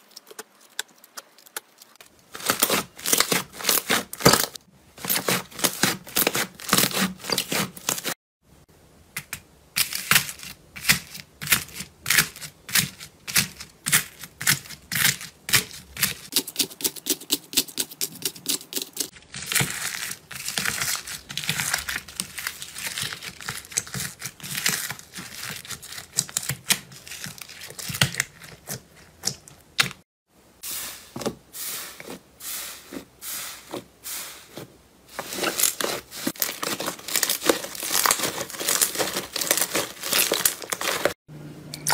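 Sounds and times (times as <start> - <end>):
slime crackling and popping: 0.1 - 8.0, 19.2 - 30.0, 35.3 - 41.2
slime with foam beads crunching: 2.0 - 8.1, 9.8 - 17.3, 18.4 - 29.8, 35.1 - 41.2.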